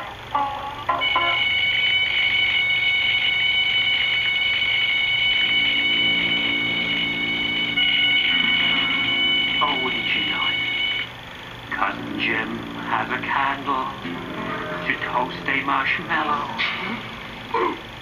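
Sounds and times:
smoke alarm shrill tone: 0.9 - 15.8
banjo notes: 11.7 - 17.2.

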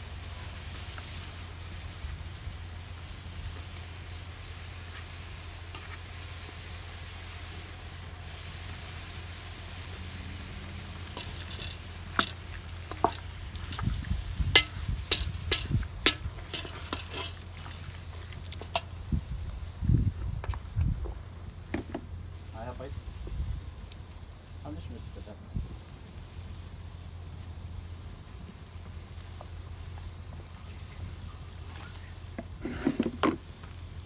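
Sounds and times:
food sizzling: 0.0 - 34.0
wooden spoon knocking a pot: 14.5 - 17.3.

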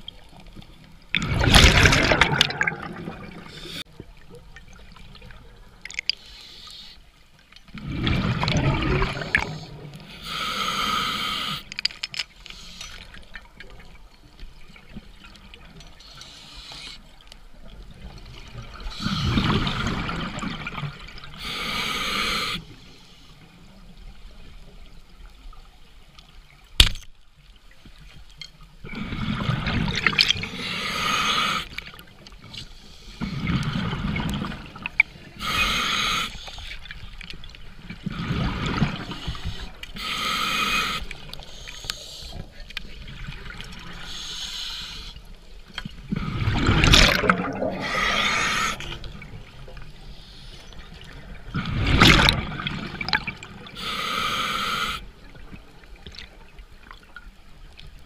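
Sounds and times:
bubbling exhaled air underwater: 1.2 - 3.8, 7.8 - 9.9, 46.0 - 49.7
regulator inhalation hiss: 10.1 - 11.7, 16.1 - 17.0, 21.4 - 23.3, 30.5 - 31.8, 35.4 - 36.8, 39.0 - 42.5, 44.0 - 45.2, 47.8 - 48.9, 53.8 - 55.1.

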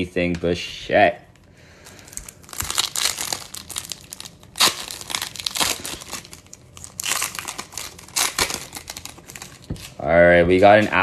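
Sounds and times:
foil wrapper tearing and crinkling: 1.9 - 10.0.

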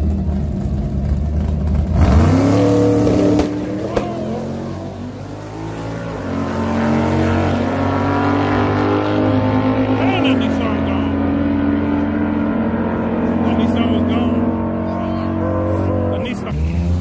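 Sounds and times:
sports car engine accelerating: 0.0 - 17.0.

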